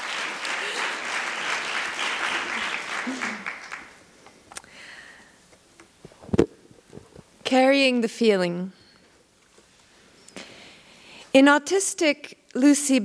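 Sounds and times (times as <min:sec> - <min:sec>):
audience applause: 0:00.0 - 0:04.0.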